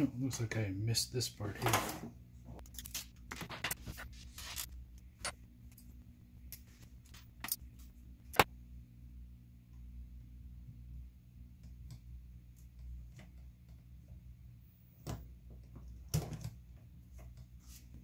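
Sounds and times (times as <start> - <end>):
clicks of small parts handled: 6.5 - 8.5.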